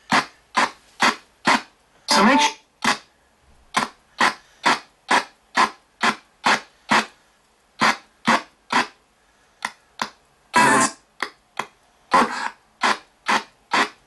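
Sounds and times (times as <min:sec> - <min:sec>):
choppy radio static bursts: 0:00.1 - 0:03.1, 0:10.5 - 0:11.0, 0:12.1 - 0:14.0.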